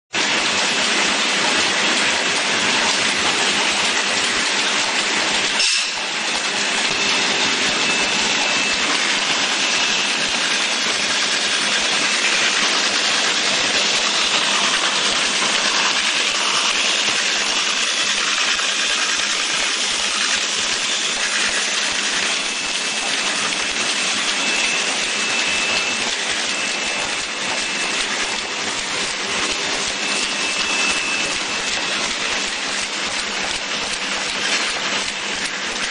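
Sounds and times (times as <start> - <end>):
packing machine running: 0.2 - 35.9
faint high machine whine: 5.6 - 33.2.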